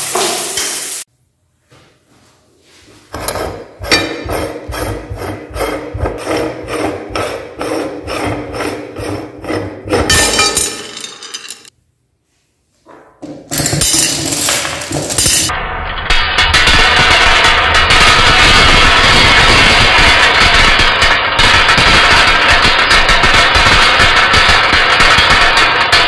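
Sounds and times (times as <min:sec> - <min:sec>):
metal scraping and clunking: 0:03.0 - 0:11.7
glass marbles clattering: 0:10.1 - 0:11.7, 0:13.5 - 0:15.5.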